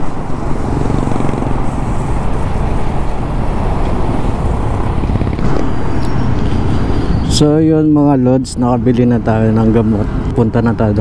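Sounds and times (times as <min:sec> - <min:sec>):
wind and road noise: 0:00.0 - 0:11.0
motorcycle engine running: 0:00.1 - 0:07.4.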